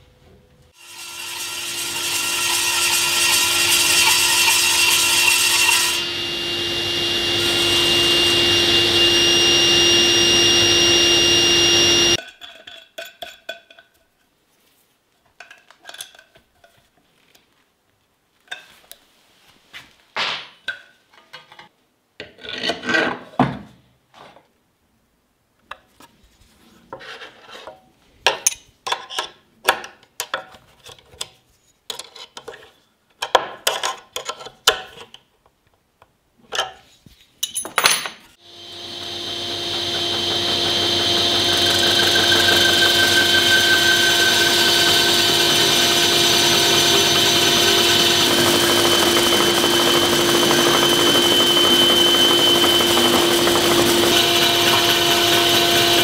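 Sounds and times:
power tool running: 0.8 - 12.2, 38.4 - 56.0.

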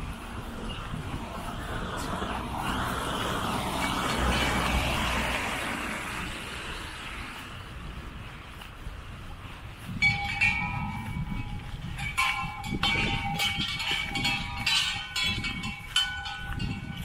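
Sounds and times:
car passing on wet road: 0.4 - 8.2.

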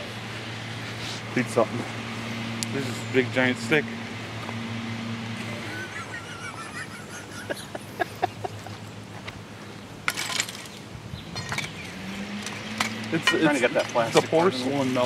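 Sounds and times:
scraping and clinking: 10.1 - 14.4.

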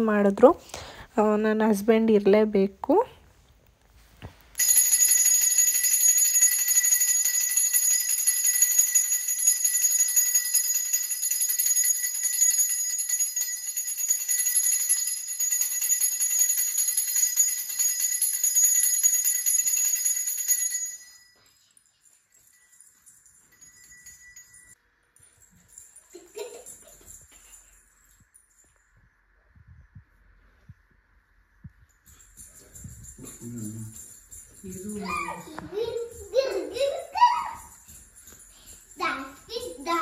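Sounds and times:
hand bell ringing: 4.6 - 24.8, 32.0 - 40.0.

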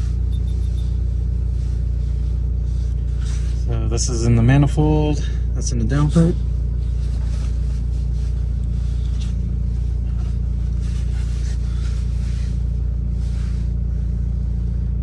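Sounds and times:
diesel engine idling: 0.0 - 15.0.

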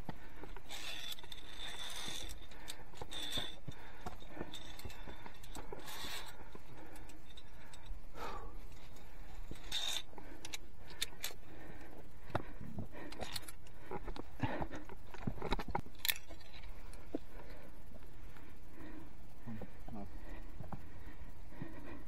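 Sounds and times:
karabiners clinking on steel cable: 0.3 - 8.0, 8.7 - 11.5, 13.0 - 14.2, 14.8 - 17.0.

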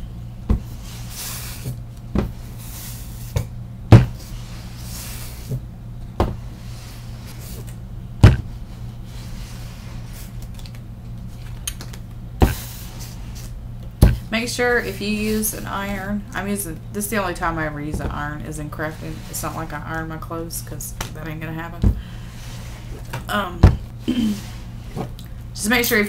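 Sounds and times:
steady low hum: 0.0 - 26.0
iron sliding swishes: 0.5 - 3.4, 4.0 - 5.6, 17.1 - 20.8.

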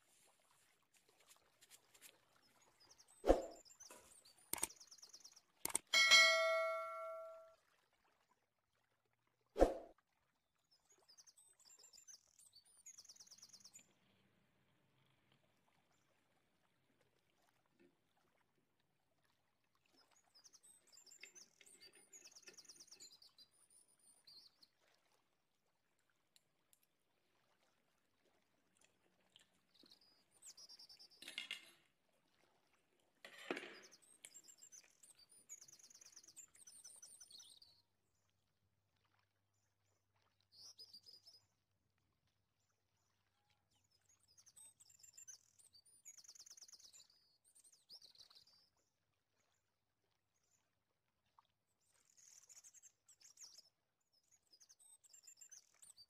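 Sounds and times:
faint bird chirps: 6.0 - 7.5, 43.8 - 48.7.

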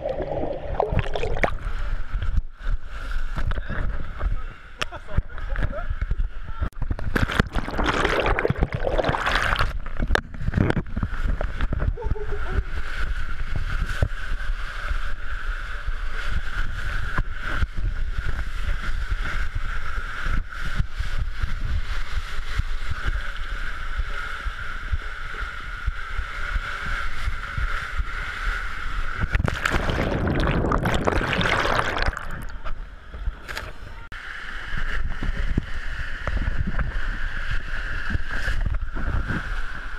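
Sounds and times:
water rushing in slide tube: 0.0 - 4.4, 6.8 - 33.8.

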